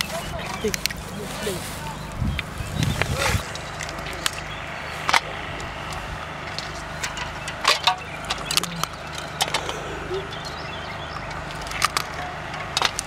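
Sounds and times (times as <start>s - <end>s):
steady low hum: 3.4s - 13.0s.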